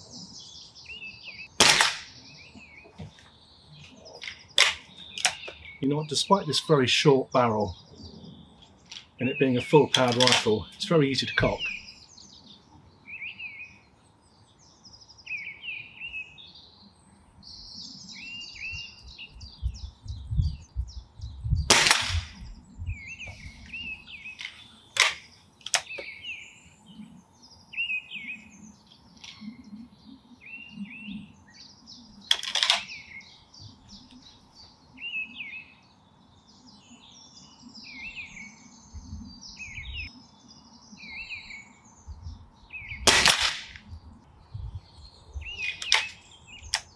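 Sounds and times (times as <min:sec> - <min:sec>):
birds chirping and singing: 0:00.0 - 0:46.9
air rifle shots: 0:01.6 - 0:02.2, 0:21.7 - 0:22.5, 0:43.0 - 0:43.8
sharp clicks: 0:24.4 - 0:26.0.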